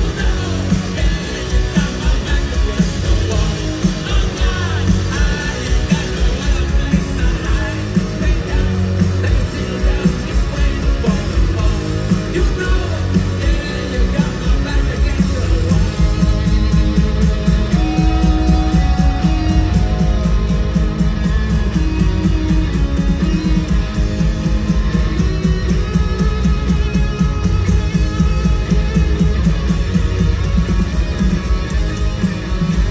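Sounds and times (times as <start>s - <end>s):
person singing: 0.0s - 16.0s
live rock band playing: 0.0s - 32.9s.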